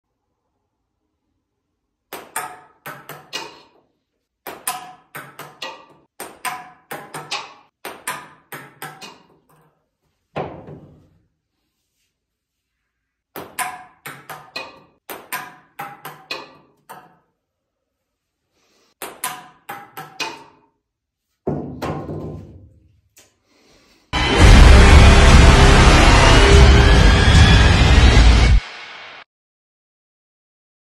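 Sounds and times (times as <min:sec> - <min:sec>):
sharp ringing struck hits: 0:24.2 - 0:27.7.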